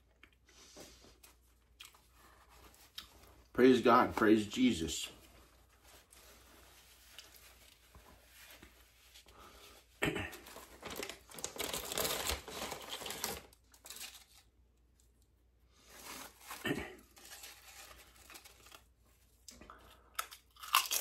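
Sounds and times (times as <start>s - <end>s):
food packaging crinkling: 10.5s - 15.1s, 15.8s - 19.5s, 20.2s - 21.0s.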